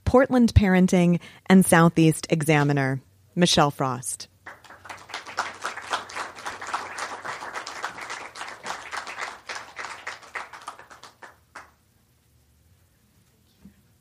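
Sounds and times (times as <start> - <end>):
audience applauding: 4.5 - 11.8.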